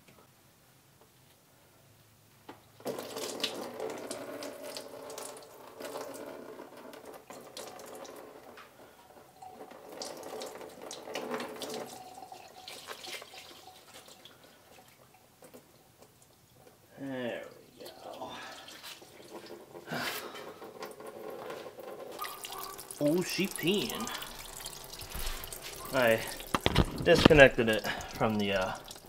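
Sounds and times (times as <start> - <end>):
coolant gushing into pan: 2.8 - 29.0.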